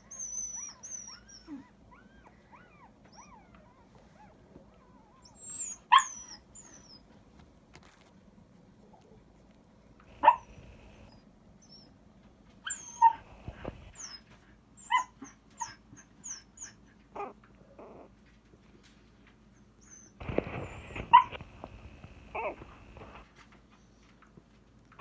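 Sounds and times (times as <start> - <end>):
puppies whimpering and squeaking: 0.0 - 7.1, 10.2 - 12.0, 12.6 - 18.4, 19.4 - 23.2.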